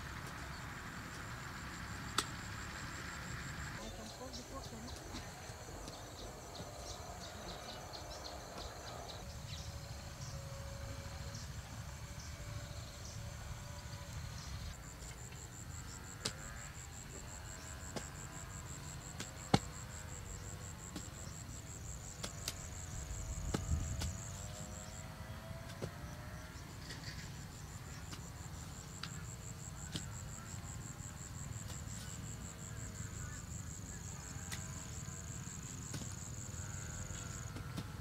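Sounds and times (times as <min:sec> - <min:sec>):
insect trill: 0:00.5 - 0:38.0.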